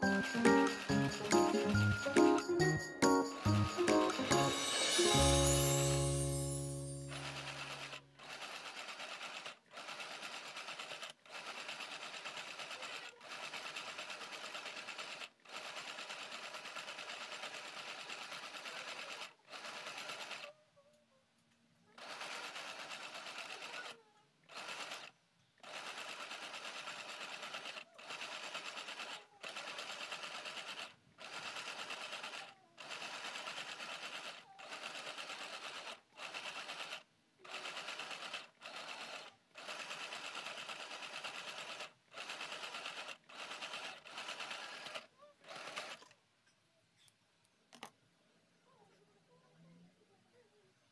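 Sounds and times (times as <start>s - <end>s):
mini sewing machine needle rattle: 0.0s - 2.5s, 6.6s - 20.6s, 21.9s - 46.2s.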